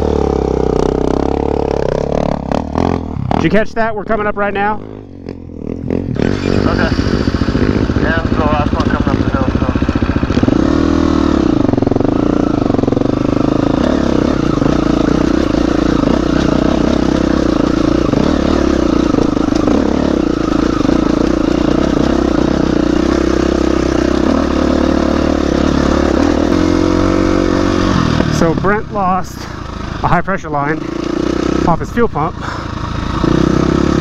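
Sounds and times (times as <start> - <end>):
dirt bike engine running: 0.0 - 34.0.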